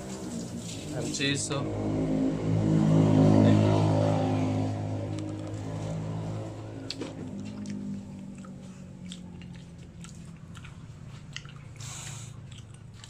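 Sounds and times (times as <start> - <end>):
steady low hum: 1.4 - 13.0
crunchy chewing: 5.2 - 13.0.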